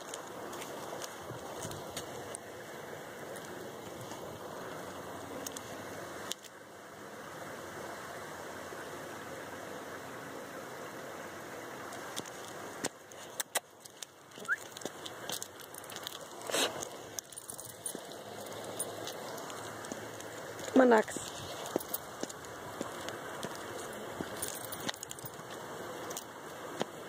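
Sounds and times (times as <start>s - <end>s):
outdoor background noise: 0.0s - 27.0s.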